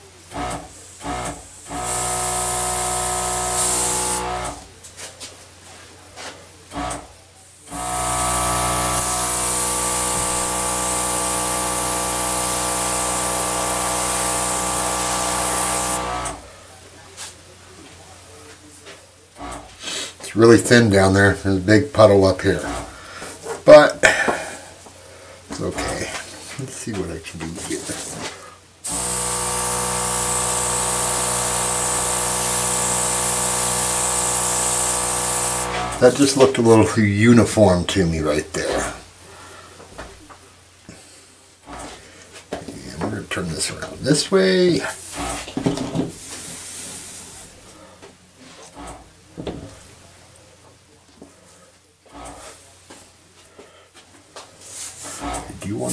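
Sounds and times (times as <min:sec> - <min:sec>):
air gun hissing: 0:00.3 - 0:04.6, 0:07.7 - 0:16.4, 0:28.8 - 0:36.2, 0:55.0 - 0:55.9
steady hum: 0:06.6 - 0:17.5.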